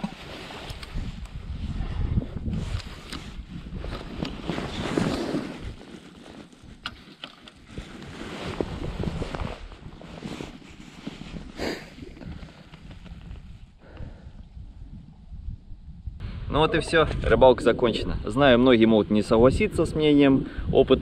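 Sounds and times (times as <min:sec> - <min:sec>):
wind buffeting microphone: 0:00.0 - 0:05.8, 0:07.6 - 0:10.4, 0:11.2 - 0:21.0
clothing rustling: 0:02.6 - 0:13.6.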